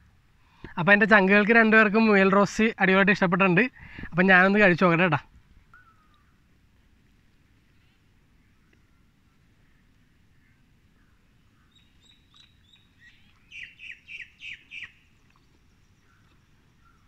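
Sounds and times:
bird calling: 5.7s - 6.4s, 7.8s - 17.0s.

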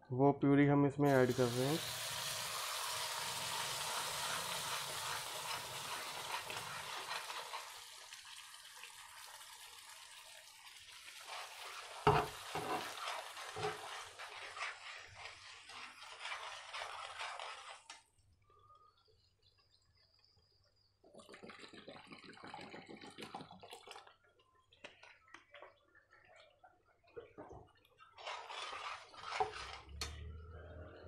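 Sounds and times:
puree sizzling in hot oil: 1.1s - 18.0s, 28.2s - 30.1s
spoon scraping metal pan: 3.9s - 7.8s, 11.2s - 18.0s, 28.2s - 30.2s.

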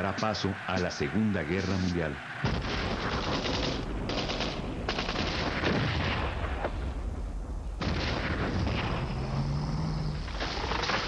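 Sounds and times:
rapid gunfire: 2.4s - 6.2s.

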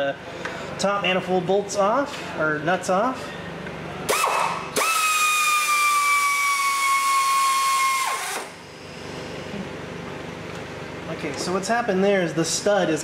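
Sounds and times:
air ratchet high whine: 4.1s - 8.7s.

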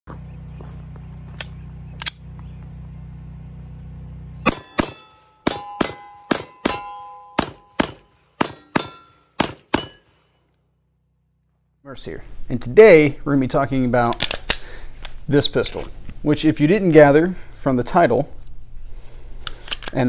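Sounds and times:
pistol shots: 4.4s - 10.3s
steel targets ringing: 4.4s - 10.4s.

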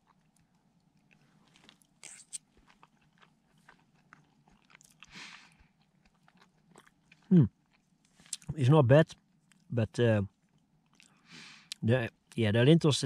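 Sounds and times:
person chewing: 0.0s - 8.5s, 10.4s - 11.8s.

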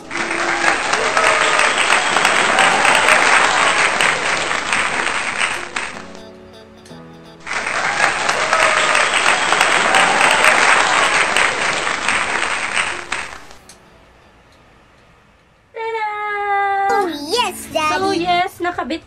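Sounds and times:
applause: 0.0s - 6.0s, 7.5s - 13.6s
soft background music: 0.0s - 11.0s, 12.9s - 15.8s, 16.9s - 19.0s.

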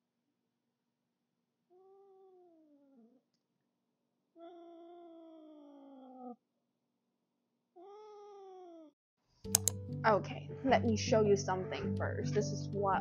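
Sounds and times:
cat meowing: 4.4s - 6.4s, 7.8s - 8.9s.

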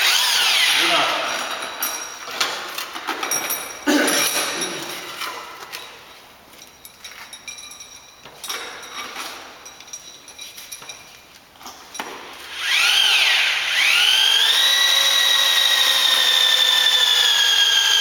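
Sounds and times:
electric drill motor: 0.0s - 1.2s, 12.4s - 18.0s.

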